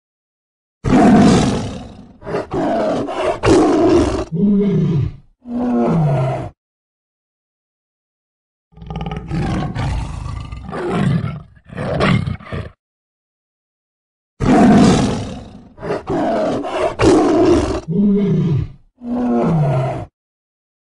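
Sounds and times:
tiger roaring: 0.8 - 6.6, 8.8 - 12.8, 14.4 - 20.1.

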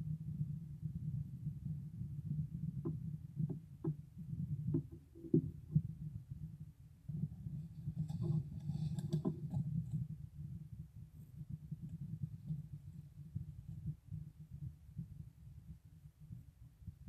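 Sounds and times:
low steady rumble: 0.0 - 17.0
soft clicks and knocks: 2.8 - 5.9, 8.0 - 10.0.

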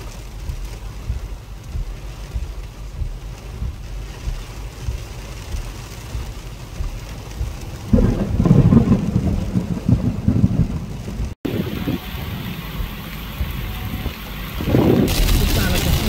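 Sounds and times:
rolling thunder: 0.0 - 16.0
wind and rain rumble: 0.0 - 16.0.

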